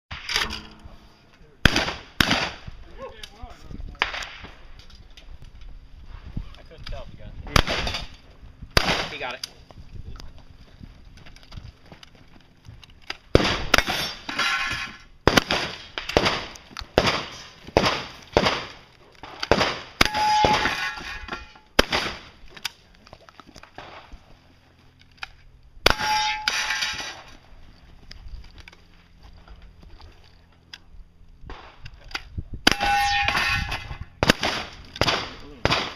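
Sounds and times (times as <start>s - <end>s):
steel target ringing: 0.4s - 1.3s, 20.0s - 21.7s, 25.8s - 27.3s, 32.7s - 34.0s
shotgun shots: 1.6s - 2.7s, 7.5s - 8.1s, 8.8s - 9.4s, 13.3s - 20.8s, 21.8s - 22.4s, 32.6s - 35.9s.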